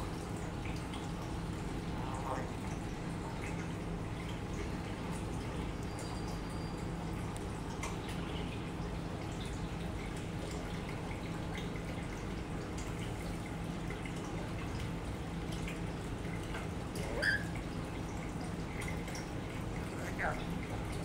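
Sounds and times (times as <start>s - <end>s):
low pump hum: 0.0s - 21.0s
water trickling and dripping: 0.0s - 21.0s
bird high squeak: 17.1s - 17.6s.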